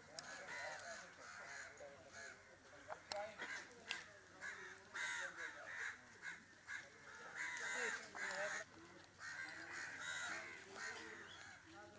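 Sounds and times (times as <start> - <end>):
birds cawing: 4.4 - 11.7.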